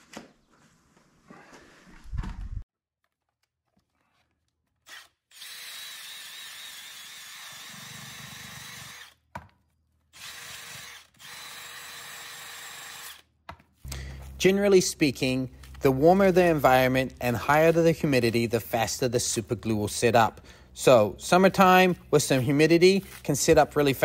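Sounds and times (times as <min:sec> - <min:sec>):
cordless drill sanding whir: 0:04.9 - 0:09.2, 0:10.2 - 0:13.3.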